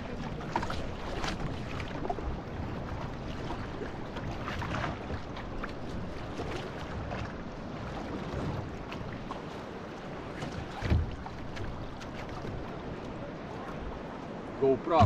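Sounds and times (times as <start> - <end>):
paddle blades splashing: 0.0 - 15.0
water washing along hull: 0.0 - 15.0.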